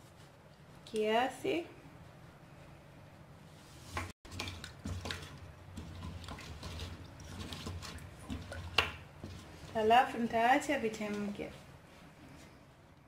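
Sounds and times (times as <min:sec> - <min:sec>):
spoon knocking and scraping metal pot: 0:04.3 - 0:09.5
water sloshing: 0:04.3 - 0:09.7.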